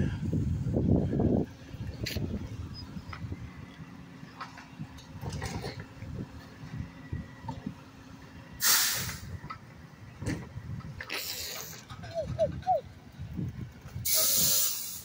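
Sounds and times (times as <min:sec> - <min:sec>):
diesel engine running: 0:00.0 - 0:15.0
air brakes hissing: 0:08.6 - 0:09.4, 0:14.0 - 0:15.0.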